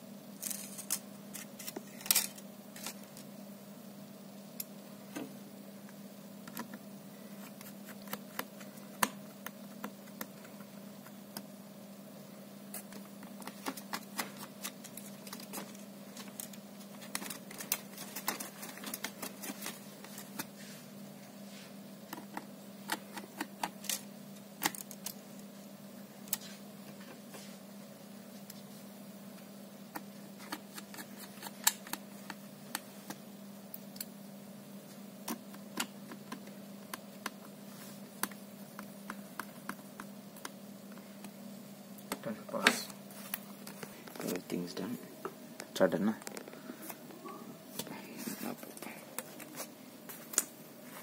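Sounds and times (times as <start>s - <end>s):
steady low hum: 0.0s - 51.0s.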